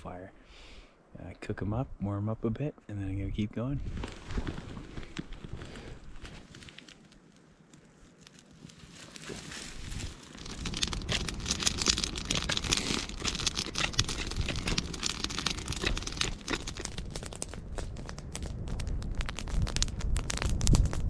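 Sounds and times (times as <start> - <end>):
campfire crackling: 4.0 - 21.0
steady low rumble: 9.7 - 21.0.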